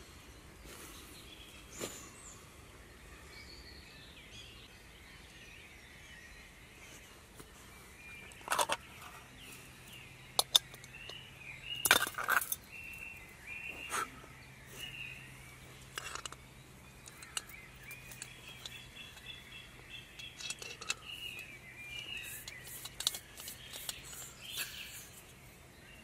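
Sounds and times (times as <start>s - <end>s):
birds chirping: 0.0s - 26.0s
camping gear clicking and knocking: 8.2s - 9.3s, 10.4s - 11.2s, 11.8s - 12.7s, 15.8s - 25.2s.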